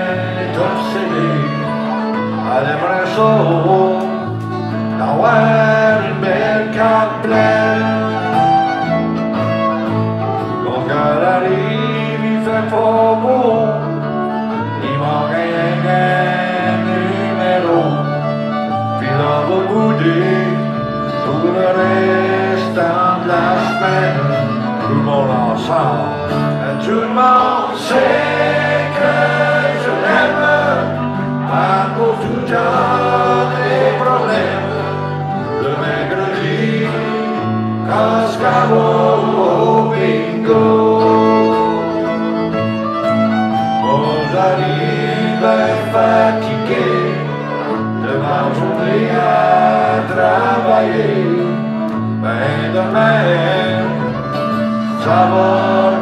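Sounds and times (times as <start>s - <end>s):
man singing: 0.0s - 8.8s, 10.5s - 42.5s, 43.8s - 56.0s
acoustic guitar: 0.0s - 56.0s.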